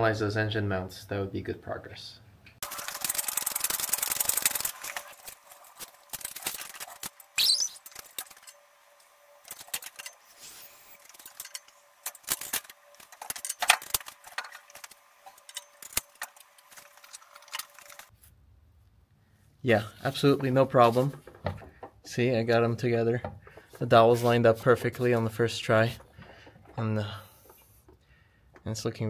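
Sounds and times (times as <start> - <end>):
faint steady whine: 2.2 - 29.0
metal clanks and clicks: 10.9 - 18.1.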